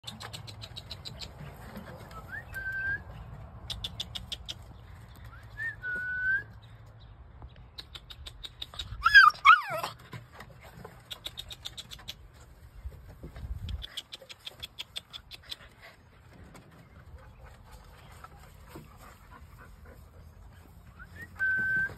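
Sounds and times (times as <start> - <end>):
puppies whining: 8.8 - 10.2, 20.5 - 21.9
puppy yelping cry: 9.0 - 10.0.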